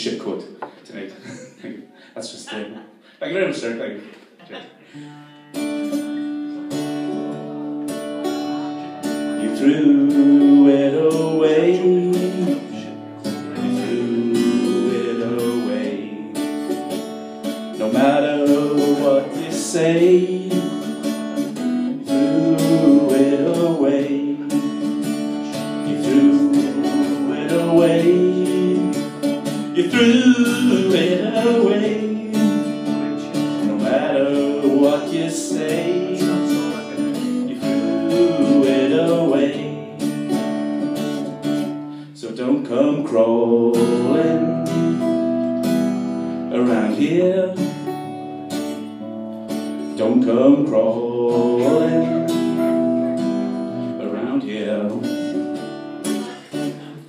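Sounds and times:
acoustic guitar strumming chords: 5.0 - 57.0.

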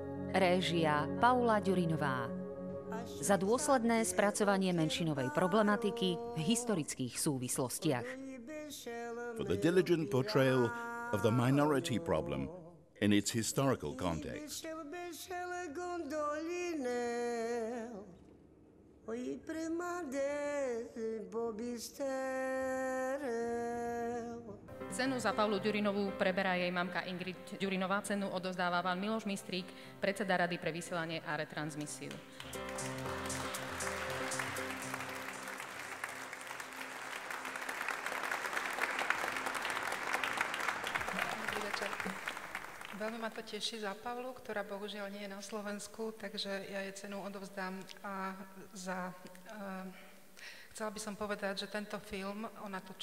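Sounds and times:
person singing slowly: 8.2 - 11.5
audience applauding: 32.1 - 43.6.

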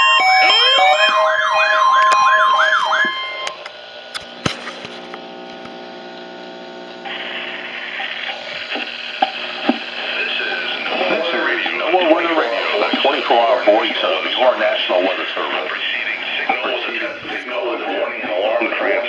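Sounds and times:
steady beeps: 0.0 - 3.6
warbling siren tones: 0.0 - 3.7, 9.5 - 15.7
steady hum: 1.1 - 19.0
radio hiss: 3.0 - 19.0.

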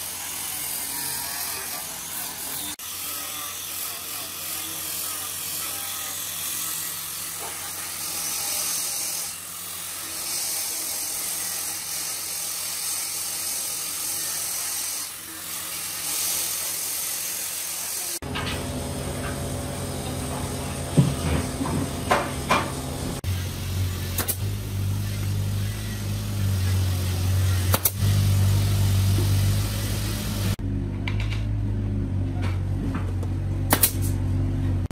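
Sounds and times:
angle grinder sanding wood: 0.0 - 30.6
lower hum: 18.2 - 34.8.

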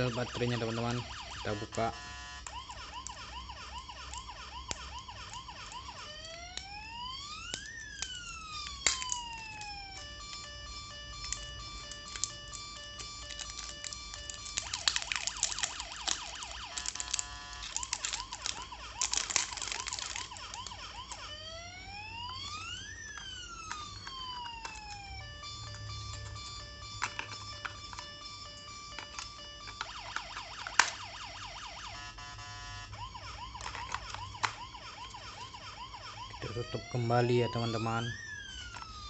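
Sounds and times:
toy electronic siren: 0.0 - 39.0
plastic parts clicking and clattering: 7.4 - 10.4, 11.2 - 21.3, 23.1 - 25.1, 26.1 - 31.0, 33.2 - 35.8.

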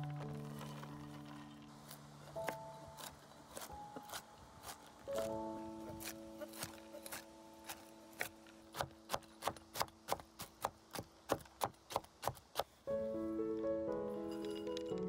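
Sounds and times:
knife chopping on wooden board: 2.4 - 12.7.

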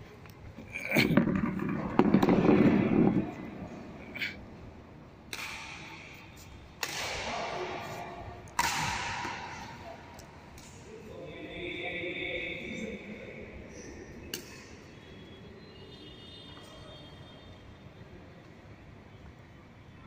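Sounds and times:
rackets hitting shuttlecock: 5.3 - 10.9, 14.3 - 14.8
players' voices: 6.8 - 14.8.

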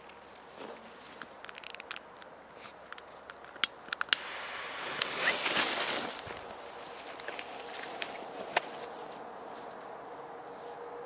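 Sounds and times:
rustling in grass: 0.0 - 1.8, 4.2 - 11.0
sharp clicks: 2.9 - 4.4
firecracker fuse hissing: 3.6 - 8.1.

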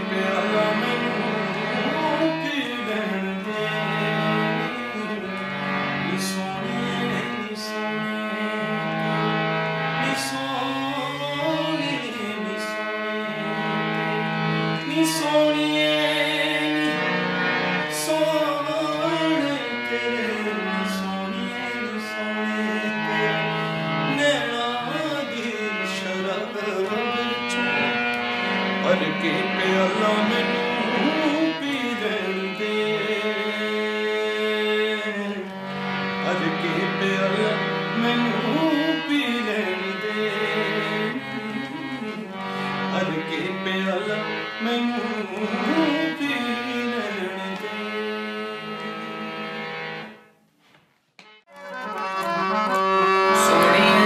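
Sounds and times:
harmonium playing chords: 0.0 - 54.0
man singing held notes: 36.2 - 49.2.

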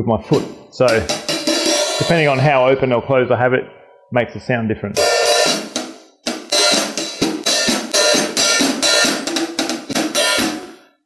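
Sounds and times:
hi-hat struck with drumstick: 0.4 - 2.3, 5.0 - 10.6.

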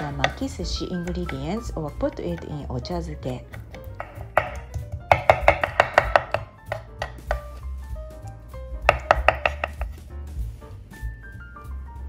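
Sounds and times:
light background music: 0.0 - 12.0
knife chopping on wooden board: 3.4 - 7.7, 8.8 - 10.1.

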